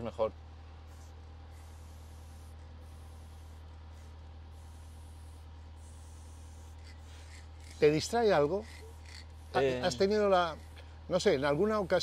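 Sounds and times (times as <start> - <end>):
steady low hum: 0.0 - 12.0
spray paint can hissing: 1.5 - 7.8.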